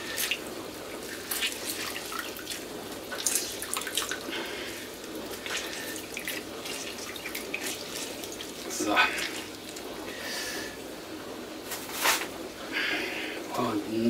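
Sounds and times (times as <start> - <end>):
juice dripping and splashing: 0.0 - 11.0.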